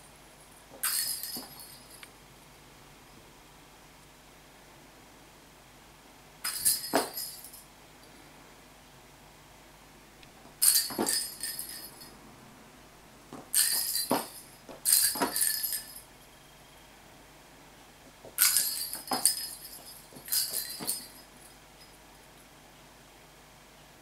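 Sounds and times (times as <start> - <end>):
plastic balls rattling on floor: 10.6 - 12.1, 13.4 - 16.0, 18.2 - 21.2.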